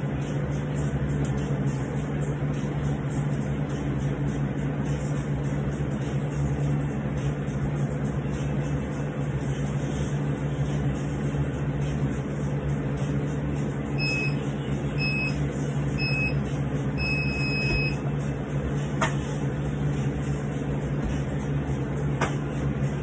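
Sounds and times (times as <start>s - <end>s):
steady low hum: 0.0s - 23.0s
long timer beep: 14.0s - 14.4s, 15.0s - 15.4s, 16.0s - 16.4s, 17.0s - 18.0s
short high beeps: 14.0s - 14.4s, 15.0s - 15.4s, 16.0s - 16.4s, 17.0s - 18.0s.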